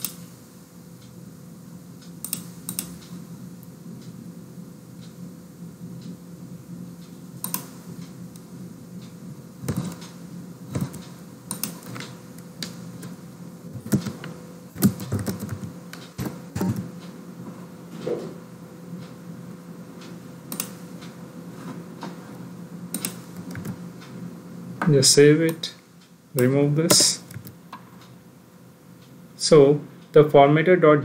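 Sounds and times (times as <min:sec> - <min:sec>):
mouse clicks: 0:07.4 - 0:07.7
keyboard typing: 0:10.7 - 0:12.1, 0:13.8 - 0:16.9.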